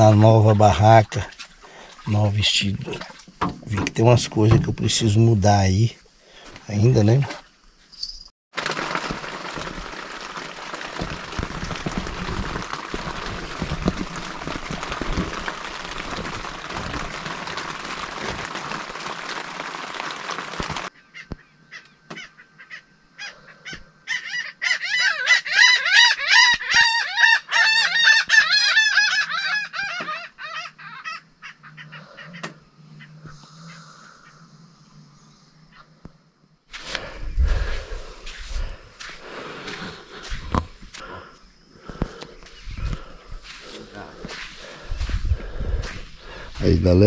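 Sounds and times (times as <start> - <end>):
wind and rain on tent: 0.0 - 7.3, 8.5 - 20.9, 36.7 - 47.0
bird calling rapidly: 20.1 - 34.4.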